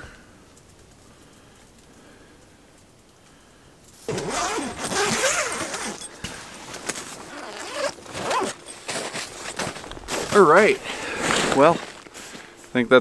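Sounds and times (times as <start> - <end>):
fabric zipper being pulled: 4.1 - 6.1, 7.2 - 8.6.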